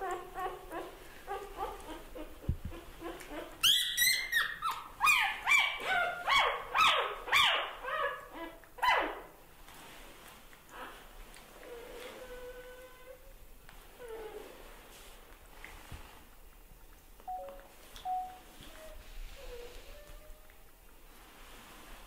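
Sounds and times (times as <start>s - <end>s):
puppy whimpering and squealing: 0.0s - 9.2s.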